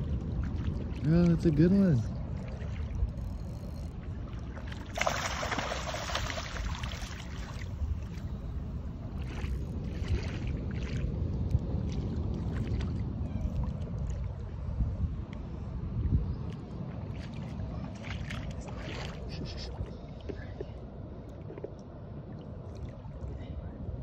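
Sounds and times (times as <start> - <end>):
wind buffeting microphone: 0.0 - 21.1
rush of water noise: 4.4 - 8.2.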